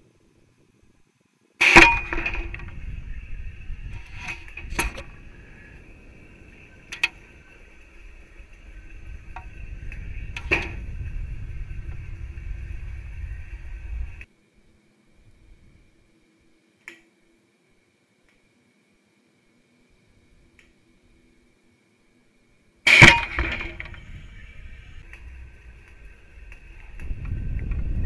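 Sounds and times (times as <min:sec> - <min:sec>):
faint steady whine: 0:00.0 - 0:28.0
low rumble: 0:02.2 - 0:14.3, 0:23.1 - 0:28.0
sharp bang: 0:22.9 - 0:24.1
rattling: 0:22.9 - 0:24.4.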